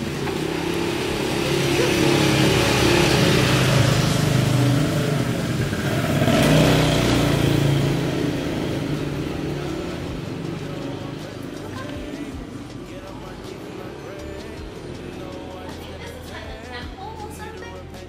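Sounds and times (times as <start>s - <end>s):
vehicle engines passing: 0.0s - 18.0s.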